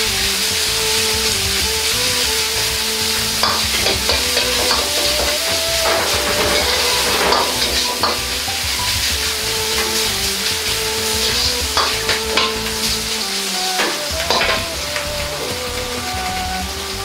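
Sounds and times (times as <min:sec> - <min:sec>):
meat sizzling in hot oil: 0:00.0 - 0:17.0
metal ladle scraping a wok: 0:02.3 - 0:15.6.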